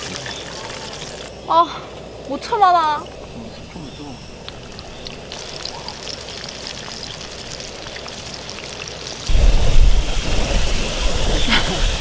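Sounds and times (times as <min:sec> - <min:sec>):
chicken sizzling in hot oil: 0:04.5 - 0:12.0.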